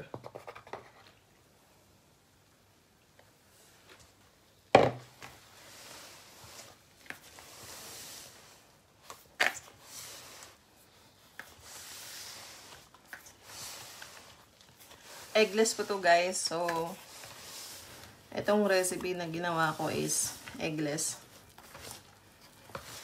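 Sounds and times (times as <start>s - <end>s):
hands kneading wet dough: 5.3s - 23.0s.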